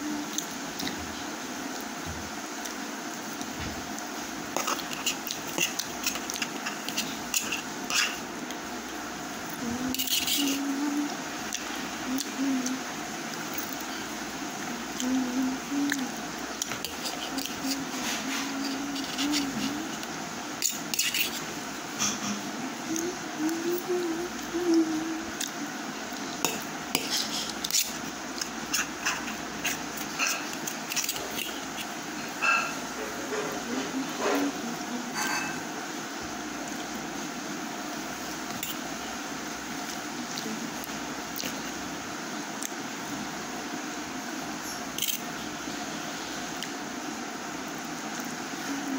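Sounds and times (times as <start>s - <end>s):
spoon scraping steel plate: 4.6s - 8.2s, 9.9s - 10.6s, 20.6s - 22.2s.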